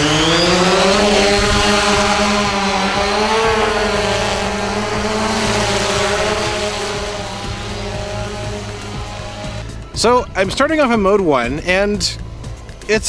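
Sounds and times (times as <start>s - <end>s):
drone propellers whining: 0.0s - 10.2s.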